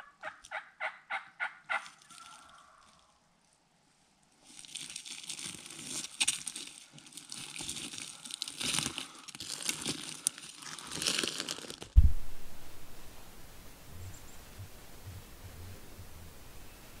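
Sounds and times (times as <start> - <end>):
forest litter crackling underfoot: 1.7 - 13.3
heavy thud: 12.0 - 13.1.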